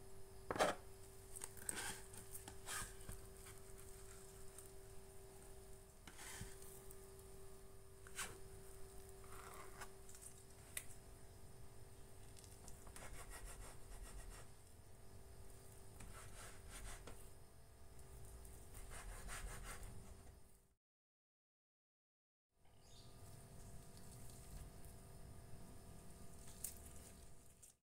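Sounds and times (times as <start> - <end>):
scraper rubbing through dough: 1.6 - 4.4, 12.9 - 14.5, 16.0 - 17.2, 18.8 - 20.2.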